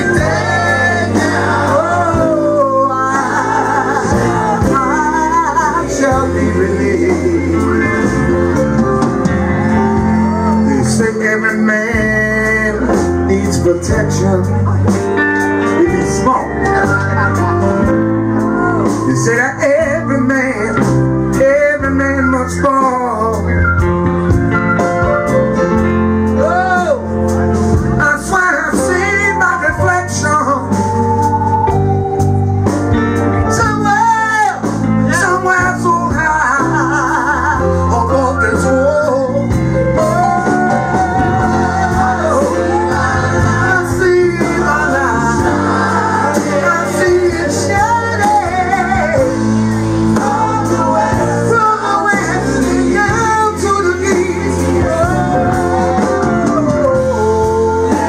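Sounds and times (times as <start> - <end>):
person singing: 0.0 - 8.6, 33.5 - 58.0
live band playing: 0.0 - 58.0.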